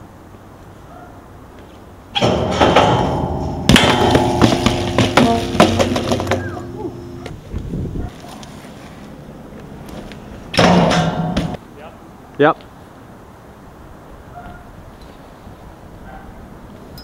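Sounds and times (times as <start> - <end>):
bike pegs grinding metal handrail: 2.2 - 7.3
metal rail ringing: 2.2 - 7.3, 10.5 - 11.6
bike hard landing: 2.2 - 7.4, 9.9 - 11.6.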